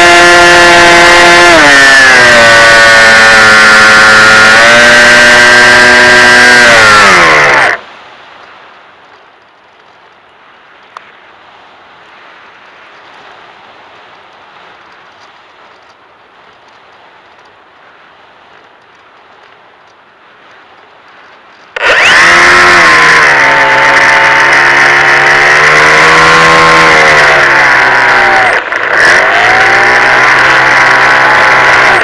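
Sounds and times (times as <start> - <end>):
electric motor and propeller whining: 0.0 - 7.9, 21.8 - 32.0.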